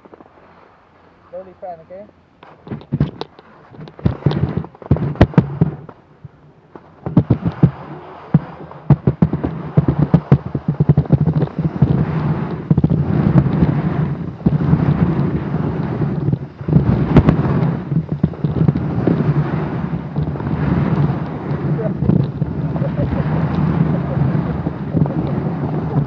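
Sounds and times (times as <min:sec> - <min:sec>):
wind buffeting microphone: 0:01.4 - 0:26.0
skis scraping over packed snow: 0:06.8 - 0:26.0.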